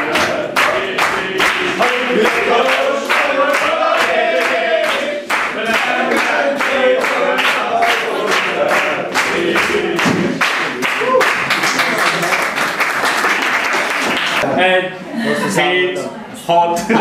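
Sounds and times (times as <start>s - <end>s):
group of voices singing: 0.0s - 10.8s
sharp rhythmic beats: 0.0s - 11.7s.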